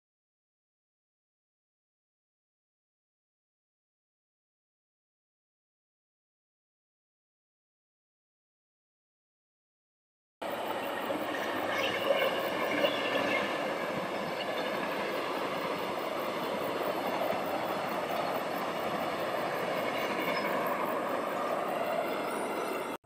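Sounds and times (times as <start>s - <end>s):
passenger train passing: 10.4s - 23.0s.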